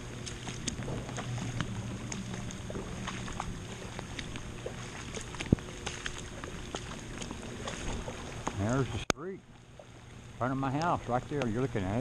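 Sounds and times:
footsteps splashing through water: 0.0 - 8.8.

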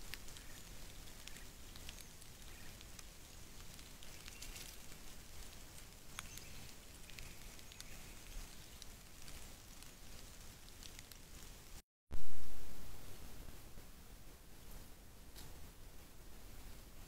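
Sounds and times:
bird rustling in leaf litter: 0.0 - 11.8.

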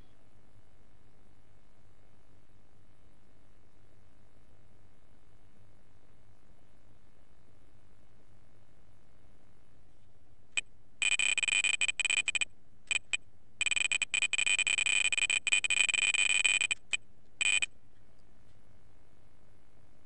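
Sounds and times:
high-pitched electronic beeping: 11.0 - 17.7.

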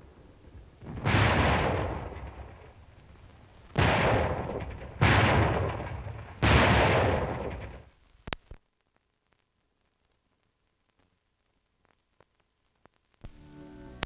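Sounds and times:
artillery booms: 0.0 - 7.9.

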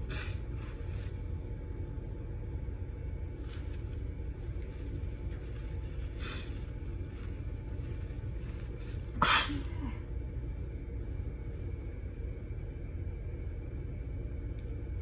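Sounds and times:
steady low rumble: 0.0 - 15.0
woman sneezing: 9.2 - 10.0.

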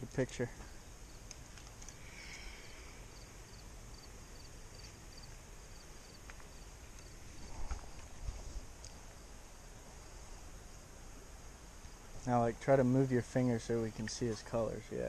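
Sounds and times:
steady low hiss: 0.0 - 15.0
insect chirping: 0.7 - 15.0.

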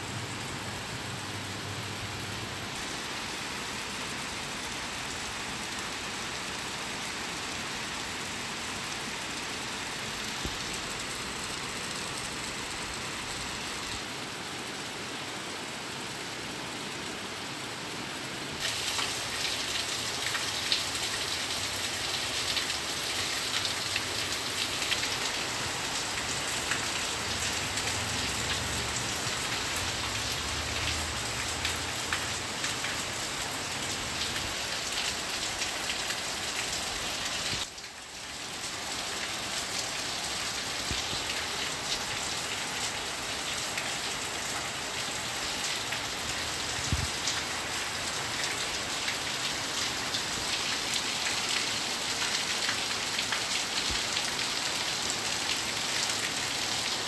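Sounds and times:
heavy rain on concrete: 0.0 - 57.0.

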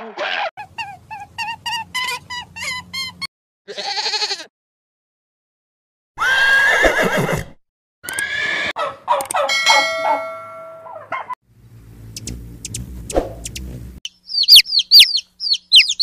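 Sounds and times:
horse neighing: 6.2 - 8.7.

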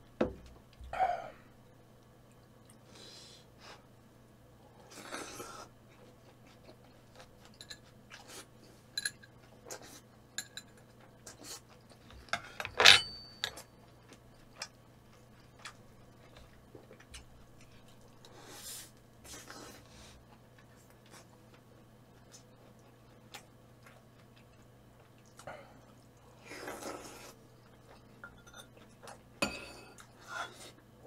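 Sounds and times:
utensils clinking against dishes: 9.0 - 9.3, 10.4 - 10.8, 12.3 - 13.7.

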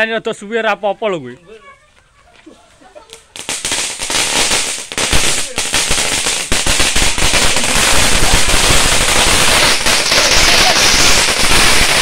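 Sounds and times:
firecrackers crackling: 2.7 - 12.0.

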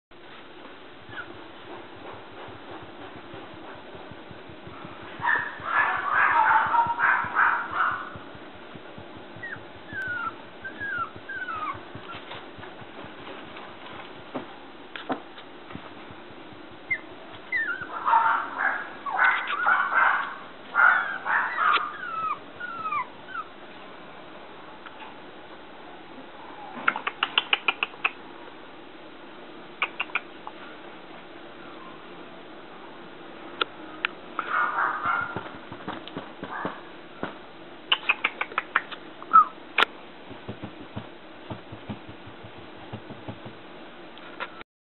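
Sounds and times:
puppy whimpering and yipping: 1.1 - 1.4, 9.4 - 12.4, 16.9 - 18.2, 19.0 - 19.9, 21.4 - 23.5, 39.3 - 39.6
soft low taps: 1.7 - 13.4, 40.3 - 43.6.

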